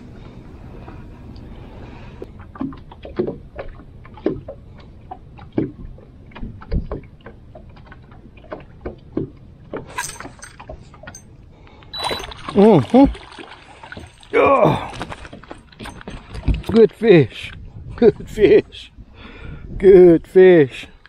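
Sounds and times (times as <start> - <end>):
knocks and thuds on boat: 2.2 - 11.2, 12.1 - 17.0.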